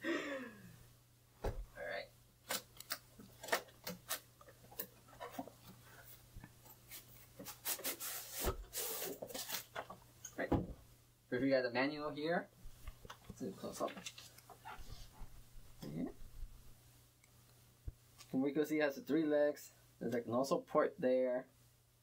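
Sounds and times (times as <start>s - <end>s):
dull thump: 1.4s - 1.7s.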